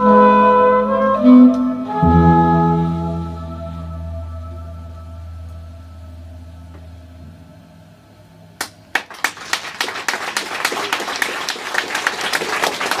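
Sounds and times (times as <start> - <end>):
band holding low note: 0.0 - 8.6
audience applause: 8.6 - 13.0.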